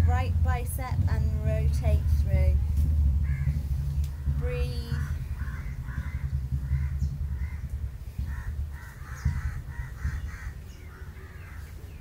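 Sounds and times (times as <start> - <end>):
low rumble: 0.0 - 12.0
crows cawing: 3.2 - 12.0.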